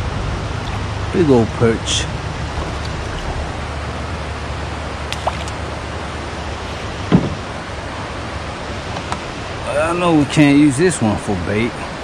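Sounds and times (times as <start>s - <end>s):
water rushing below a dam: 0.0s - 12.0s
short knock: 7.1s - 7.4s.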